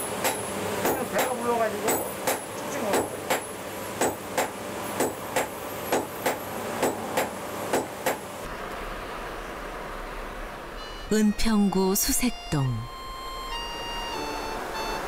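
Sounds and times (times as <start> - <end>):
hammer striking anvil: 0.2 - 8.2.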